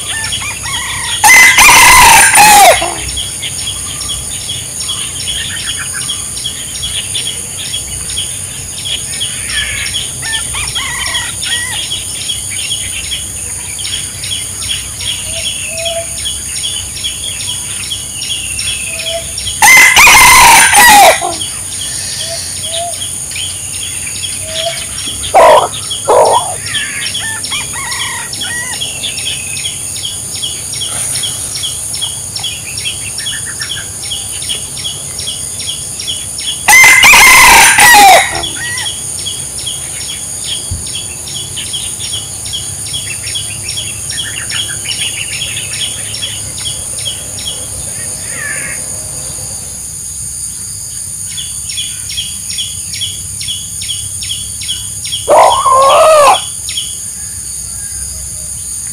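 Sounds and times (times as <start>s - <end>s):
rooster crowing: 0.0s - 3.2s, 9.5s - 12.1s, 19.0s - 23.0s, 24.4s - 29.2s, 36.7s - 39.0s, 55.3s - 56.5s
insect chirping: 0.0s - 58.9s
short loud rooster calls: 0.1s - 3.1s, 19.6s - 21.4s, 36.7s - 38.9s, 55.3s - 56.5s.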